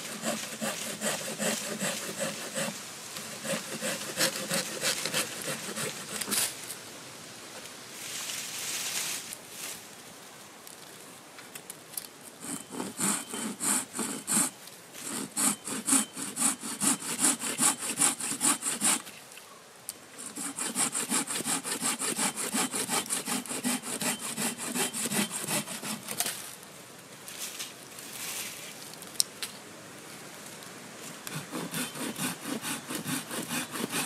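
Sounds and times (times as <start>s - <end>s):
hand saw cutting branch: 0.0s - 6.6s, 12.4s - 19.1s, 20.2s - 26.4s, 31.3s - 34.0s.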